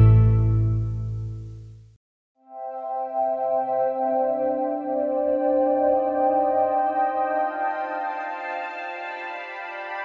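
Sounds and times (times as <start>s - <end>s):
calm ambient music: 2.4s - 10.0s.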